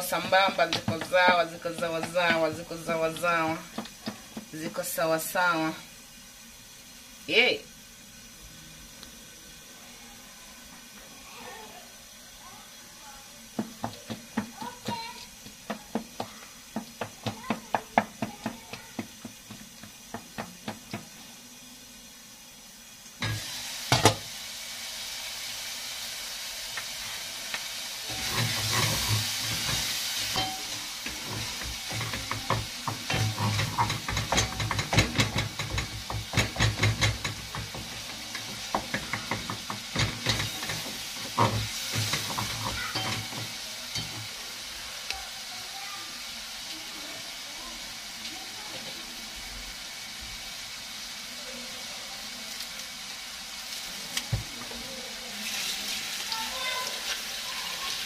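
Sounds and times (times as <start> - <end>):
spoon knocking against pot: 0.0 - 4.6, 13.6 - 21.1, 28.1 - 44.3
wooden spoon scraping a pot: 0.0 - 4.8, 28.1 - 44.2
food sizzling: 0.0 - 58.0.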